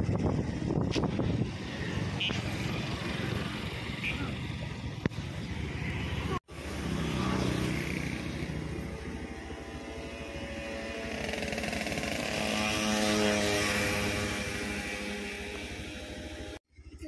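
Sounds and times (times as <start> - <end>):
small vehicle engine running: 0.0 - 17.0.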